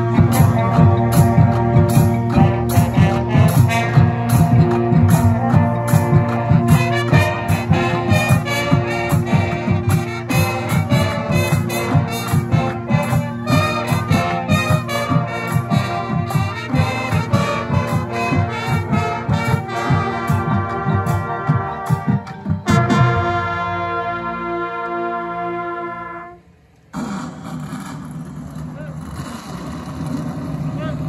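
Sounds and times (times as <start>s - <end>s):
drumline playing rapid hits: 0.0s - 24.7s, 26.9s - 31.0s
marching band brass: 0.0s - 31.0s.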